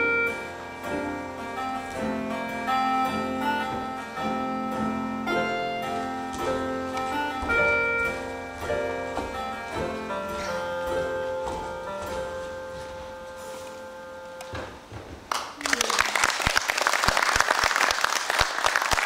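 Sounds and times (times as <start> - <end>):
plucked instrumental melody: 0.0 - 14.7.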